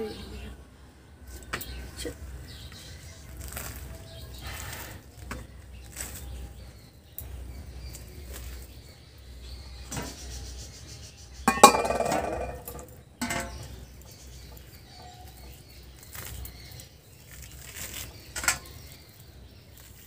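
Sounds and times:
metal utensils clinking: 11.5s - 13.7s
metal vessel clanking: 11.5s - 13.7s.

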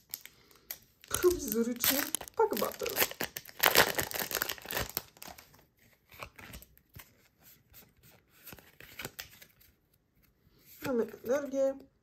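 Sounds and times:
foil wrapper crinkling: 0.0s - 6.8s
cards clicking and rustling: 7.8s - 9.7s.

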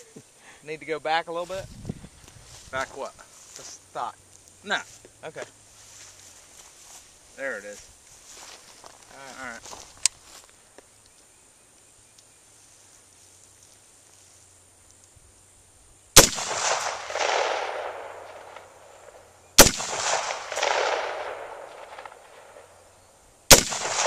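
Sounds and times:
rifle shots echoing: 16.2s - 22.8s, 23.5s - 24.0s.

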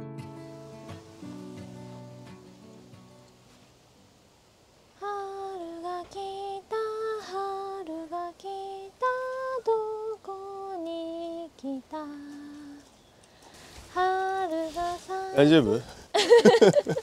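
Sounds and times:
woman singing unaccompanied: 5.0s - 13.0s, 13.6s - 15.5s.

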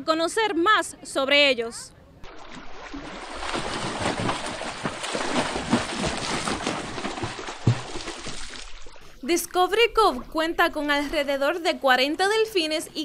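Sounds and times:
dolphins splashing: 2.2s - 9.3s.

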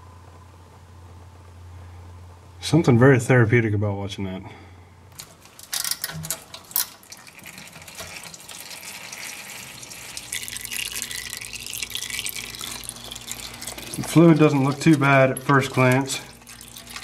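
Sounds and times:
fluid pouring into metal pan: 5.6s - 17.0s.

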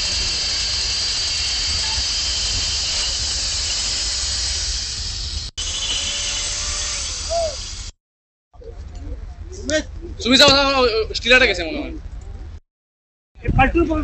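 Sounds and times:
power cutter whining: 0.0s - 8.0s.

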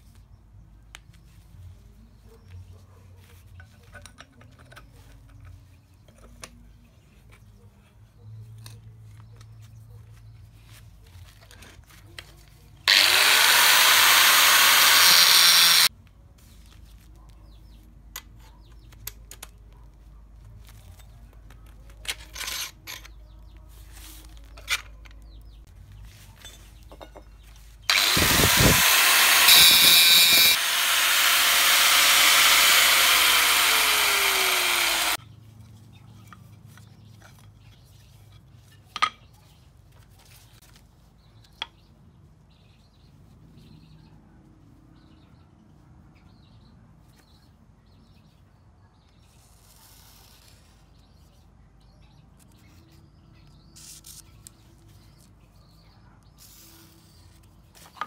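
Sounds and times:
power tool running: 12.9s - 15.9s, 27.9s - 35.2s.

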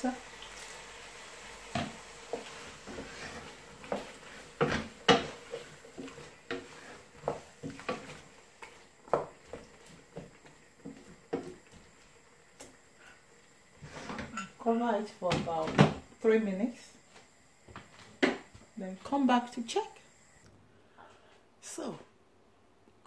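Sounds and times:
wooden spoon scraping a pot: 1.7s - 12.2s, 13.0s - 14.7s.

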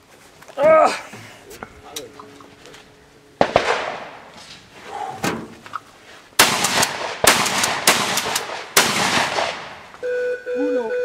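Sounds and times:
shotgun shots: 3.4s - 4.5s, 6.4s - 9.9s.

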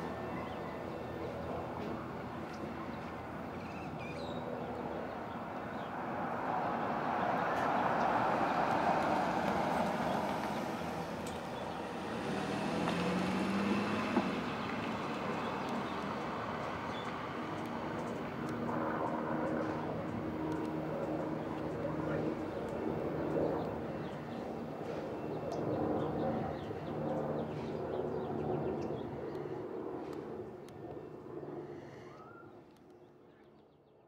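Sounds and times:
road traffic noise: 0.0s - 32.2s
engine rising in pitch: 7.3s - 17.0s.

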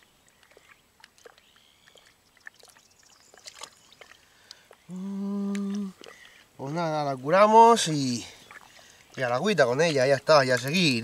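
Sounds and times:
man humming: 4.9s - 6.0s.

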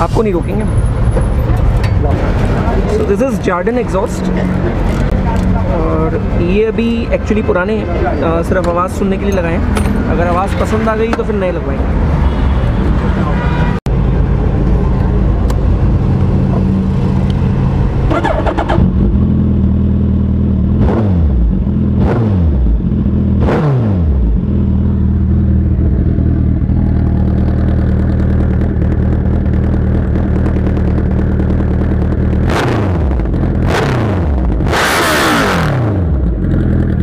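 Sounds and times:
motorcycle engine idling: 24.4s - 32.5s.

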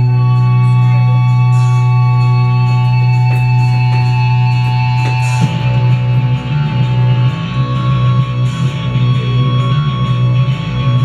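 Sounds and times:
droning chord: 0.0s - 11.0s
heavy electric guitar music: 0.0s - 11.0s.

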